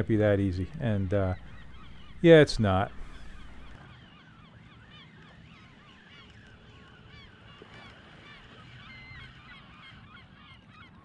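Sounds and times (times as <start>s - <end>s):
flock of birds calling: 0.2s - 3.8s.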